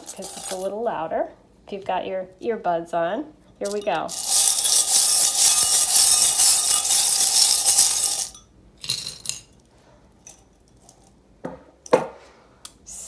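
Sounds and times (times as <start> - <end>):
metal charms jingling: 3.6 - 9.5
metal clinks: 3.6 - 9.5.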